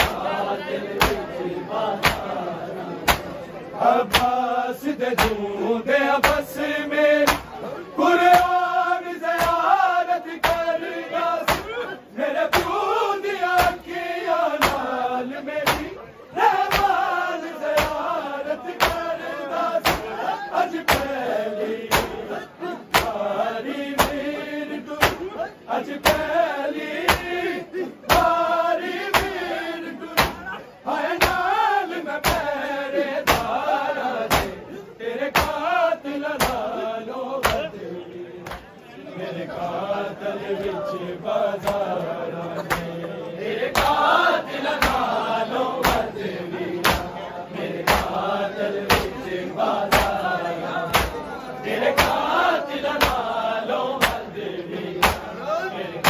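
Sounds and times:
men chanting a lament: 0:00.0 - 0:56.0
hands slapping chests: 0:01.0 - 0:01.3, 0:02.0 - 0:02.4, 0:03.0 - 0:03.4, 0:04.0 - 0:04.4, 0:05.1 - 0:05.4, 0:06.2 - 0:06.5, 0:07.2 - 0:07.5, 0:08.3 - 0:08.6, 0:09.3 - 0:09.7, 0:10.4 - 0:10.7, 0:11.4 - 0:11.8, 0:12.5 - 0:12.8, 0:13.6 - 0:13.9, 0:14.6 - 0:15.0, 0:15.6 - 0:16.0, 0:16.6 - 0:17.0, 0:17.6 - 0:18.1, 0:18.7 - 0:19.1, 0:19.8 - 0:20.1, 0:20.8 - 0:21.2, 0:21.9 - 0:22.2, 0:22.9 - 0:23.2, 0:24.0 - 0:24.2, 0:25.0 - 0:25.3, 0:27.0 - 0:27.4, 0:28.1 - 0:28.4, 0:29.1 - 0:29.4, 0:30.2 - 0:30.6, 0:31.2 - 0:31.5, 0:32.2 - 0:32.5, 0:33.2 - 0:33.6, 0:34.2 - 0:34.6, 0:35.3 - 0:35.7, 0:36.4 - 0:36.7, 0:37.4 - 0:37.7, 0:38.4 - 0:38.7, 0:41.6 - 0:42.0, 0:42.6 - 0:43.0, 0:43.7 - 0:44.1, 0:44.8 - 0:45.2, 0:45.8 - 0:46.2, 0:46.8 - 0:47.1, 0:47.8 - 0:48.2, 0:48.8 - 0:50.3, 0:50.9 - 0:51.3, 0:51.9 - 0:52.3, 0:52.9 - 0:53.3, 0:54.0 - 0:54.3, 0:55.0 - 0:55.3.

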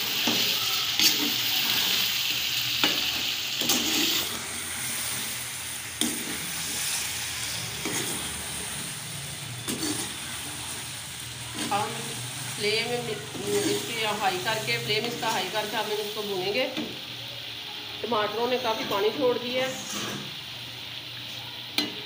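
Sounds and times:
food sizzling in a pan: 0:00.0 - 0:22.0
metal spatula scraping a pan: 0:00.2 - 0:02.1, 0:02.7 - 0:05.4, 0:06.0 - 0:08.8, 0:09.5 - 0:10.8, 0:13.3 - 0:14.0, 0:18.7 - 0:20.4.

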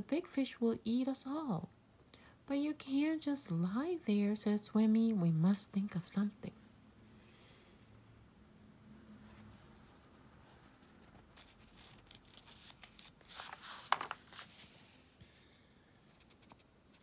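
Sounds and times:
book pages rustling and turning: 0:09.2 - 0:15.2.

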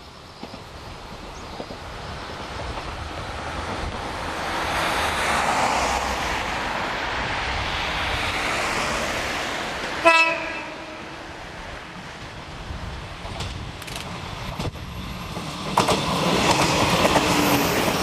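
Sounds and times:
steady rushing noise: 0:00.6 - 0:18.0
electric train horn blast: 0:10.0 - 0:11.2.

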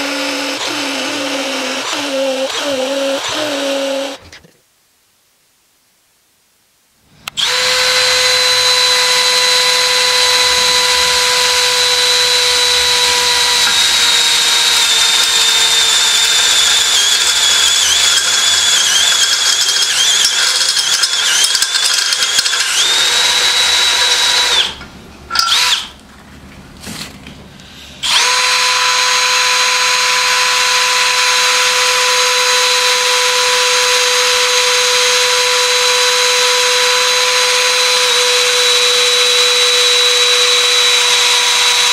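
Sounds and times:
drill motor whine: 0:07.4 - 0:26.0, 0:28.0 - 0:41.9.

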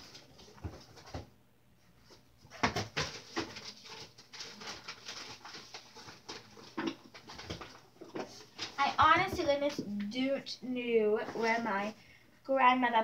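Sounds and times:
rummaging knocks and clatters: 0:00.0 - 0:01.3, 0:02.0 - 0:09.8.

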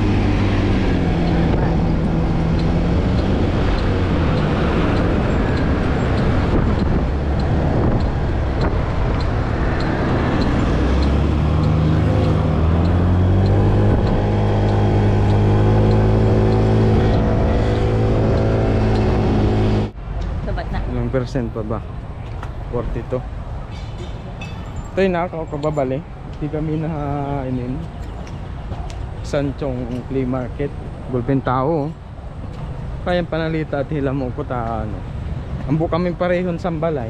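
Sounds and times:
light ticking: 0:02.0 - 0:19.2.

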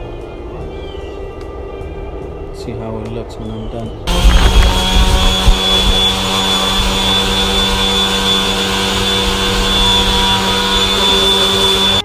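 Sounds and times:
orbital sander hum and whine: 0:04.0 - 0:12.0.

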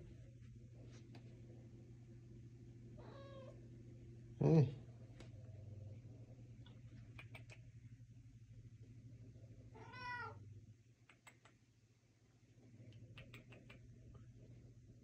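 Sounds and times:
low steady hum: 0:00.0 - 0:15.0
cat meowing: 0:03.0 - 0:03.6, 0:09.8 - 0:10.4
light clicks: 0:11.0 - 0:11.6, 0:12.9 - 0:13.9.

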